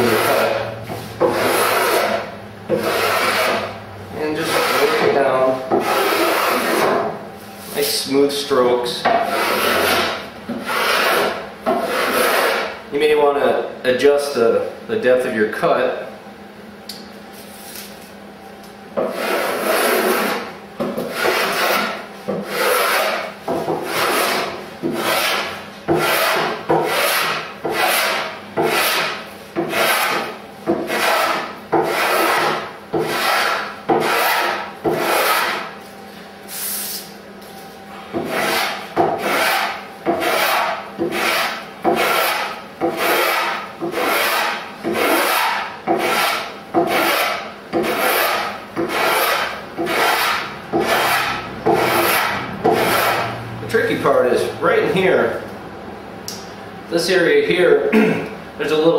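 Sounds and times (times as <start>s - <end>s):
plane shaving wood: 0.0s - 8.1s, 8.7s - 12.7s, 19.0s - 35.7s, 38.1s - 55.4s.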